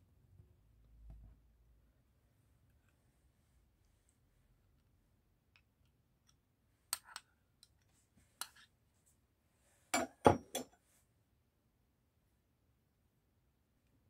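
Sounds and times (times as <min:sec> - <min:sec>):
metal spoon clinking on glass bowl: 0:10.0 - 0:10.7.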